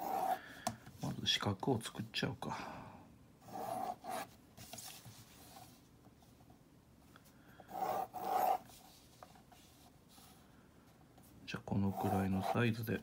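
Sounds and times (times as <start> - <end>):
pencil ruling lines on paper: 0.0 - 0.4, 3.4 - 5.8, 7.7 - 10.5, 11.6 - 13.0.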